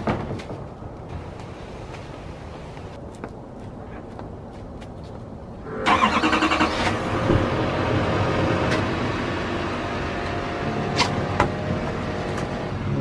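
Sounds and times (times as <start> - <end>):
truck engine starting and idling: 5.6 - 13.0.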